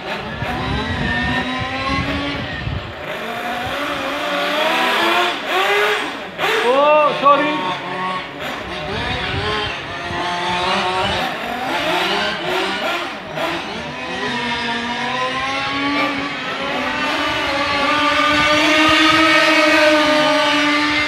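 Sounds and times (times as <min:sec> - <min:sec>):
model car motors whining: 0:00.0 - 0:21.0.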